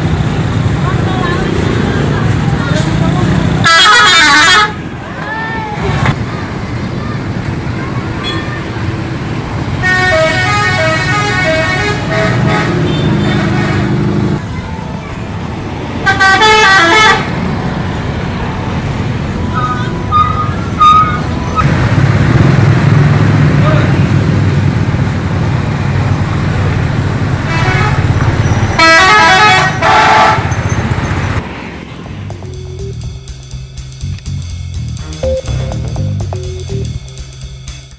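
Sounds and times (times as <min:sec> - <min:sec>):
motorcycle engines: 0:00.0 - 0:37.9
road traffic noise: 0:00.0 - 0:37.9
bus musical horn: 0:03.6 - 0:04.9, 0:09.8 - 0:14.4, 0:16.0 - 0:17.4, 0:27.5 - 0:28.2, 0:28.8 - 0:30.7.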